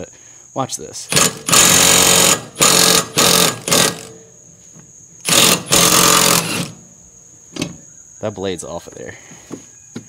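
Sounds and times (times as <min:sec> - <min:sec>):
impact wrench hammering: 0:01.1 - 0:04.2, 0:05.2 - 0:06.8.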